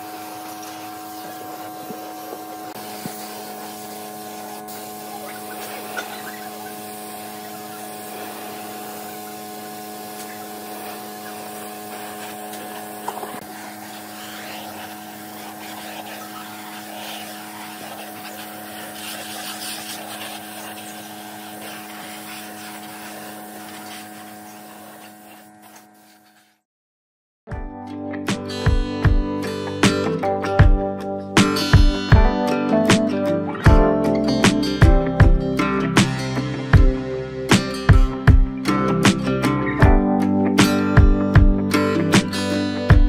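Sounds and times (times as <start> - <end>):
steady hum: 0.0 - 25.5
spray gun hissing: 0.0 - 26.5.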